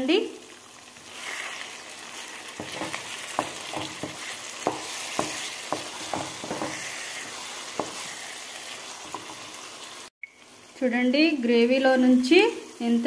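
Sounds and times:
chicken sizzling in oil: 0.0s - 13.0s
spatula scraping a pan: 1.0s - 9.5s.

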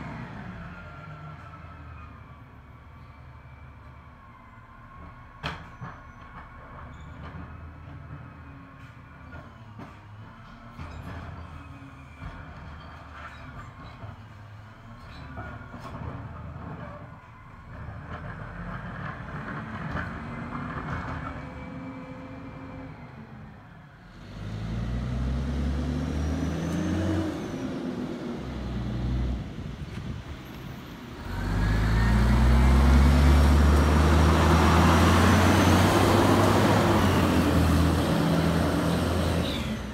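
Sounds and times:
garbage truck diesel engine driving past: 15.6s - 39.9s.

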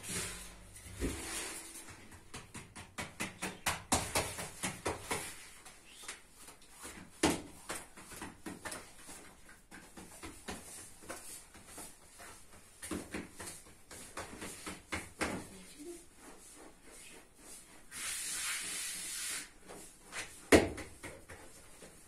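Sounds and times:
hands patting dough: 0.1s - 16.7s.

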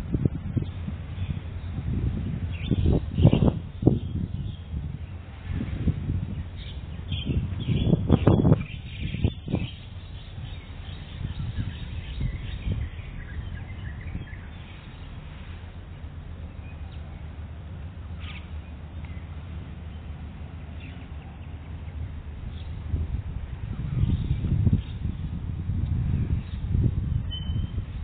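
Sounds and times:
steady low rumble: 0.0s - 28.0s
faint bird chirps: 27.2s - 27.8s.

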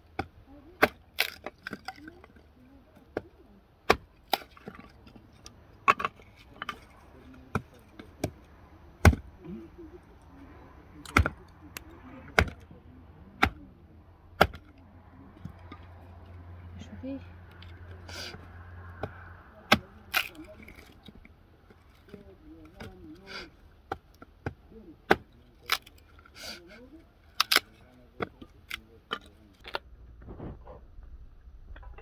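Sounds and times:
hatchet chopping wood: 0.1s - 1.9s, 3.1s - 5.0s, 7.5s - 9.3s, 11.0s - 12.6s, 13.4s - 13.6s, 14.4s - 14.7s, 18.3s - 21.2s, 23.8s - 25.9s.

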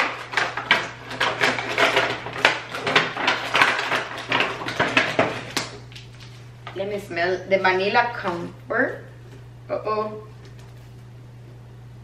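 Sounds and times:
plastic packaging rustling: 0.0s - 6.6s.

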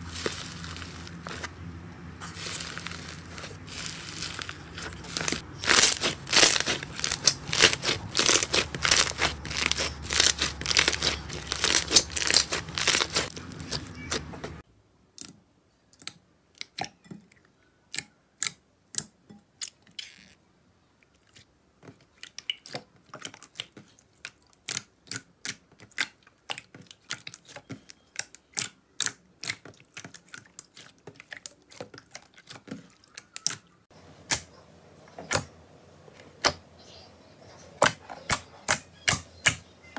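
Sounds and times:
crunchy slime crackling: 0.0s - 1.6s, 2.2s - 14.6s
spoon clicking in runny slime: 22.2s - 33.7s.

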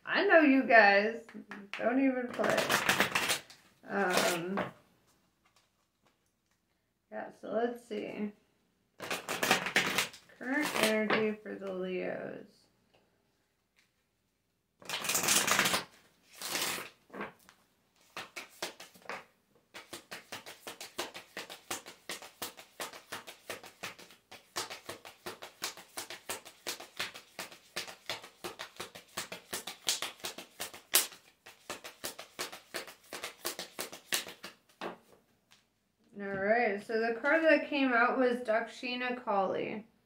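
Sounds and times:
cards shuffling: 1.5s - 4.8s, 9.0s - 11.4s, 14.8s - 35.7s
cards swishing: 2.3s - 4.7s, 9.0s - 11.2s, 14.8s - 35.1s.

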